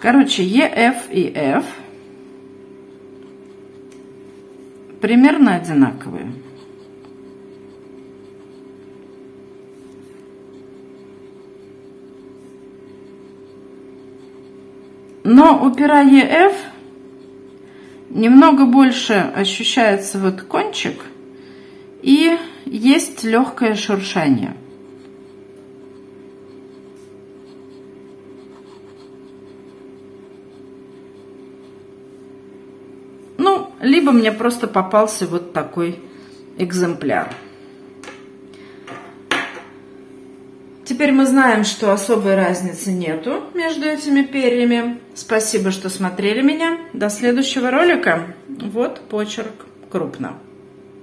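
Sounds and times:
steady low hum: 0:00.0 - 0:51.0
fountain pen scratching on paper: 0:02.7 - 0:04.6, 0:05.2 - 0:18.8, 0:23.1 - 0:32.4.

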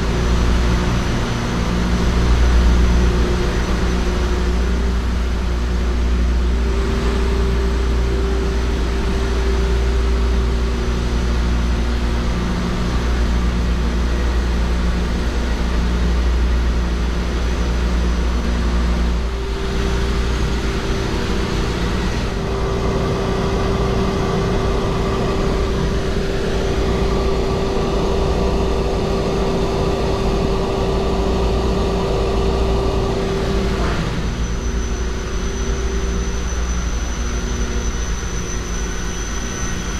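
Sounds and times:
engine room machinery hum: 0:00.0 - 0:39.9.

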